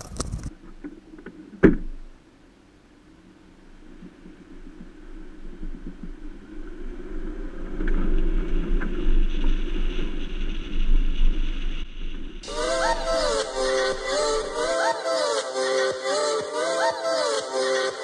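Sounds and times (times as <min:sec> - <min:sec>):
music: 0:12.4 - 0:18.0.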